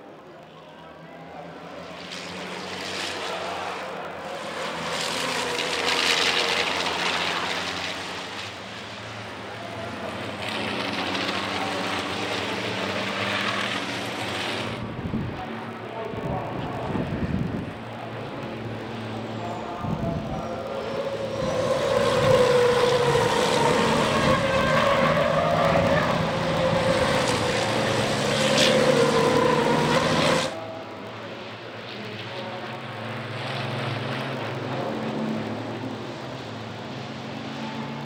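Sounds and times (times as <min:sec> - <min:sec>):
distant truck engines: 0:00.0 - 0:38.0
diesel truck engines at high revs: 0:01.7 - 0:15.5, 0:16.4 - 0:31.2.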